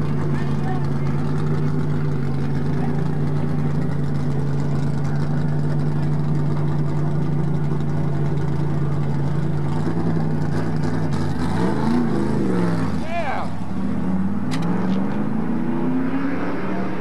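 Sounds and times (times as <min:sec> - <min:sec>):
car engine idling: 0:00.0 - 0:15.4
engine note rising and falling: 0:09.6 - 0:17.0.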